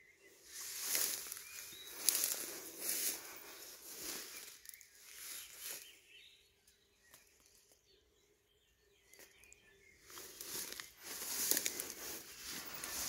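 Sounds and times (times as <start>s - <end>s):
rustling: 10.2s - 13.0s.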